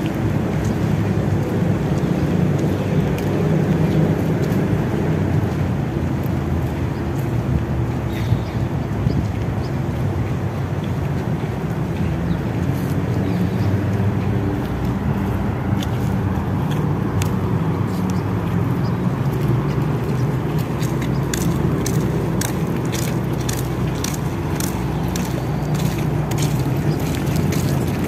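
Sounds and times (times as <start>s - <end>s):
road traffic rumble: 0.0s - 28.0s
footsteps: 9.1s - 28.0s.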